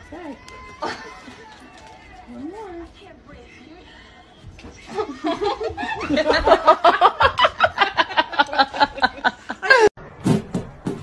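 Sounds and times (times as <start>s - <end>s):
person laughing hard: 5.1s - 10.0s.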